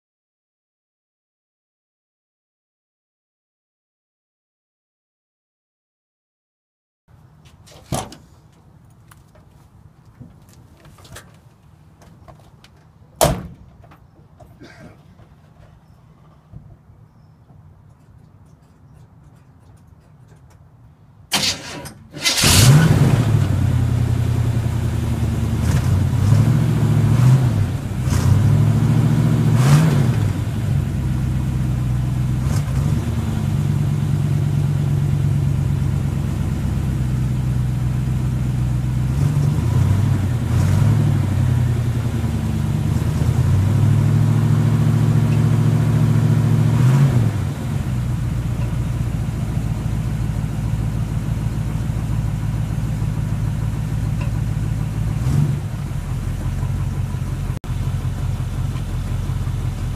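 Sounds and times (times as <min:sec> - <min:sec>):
engine cranking: 0:21.3 - 0:23.1
engine idling with rev blips: 0:21.3 - 0:59.9.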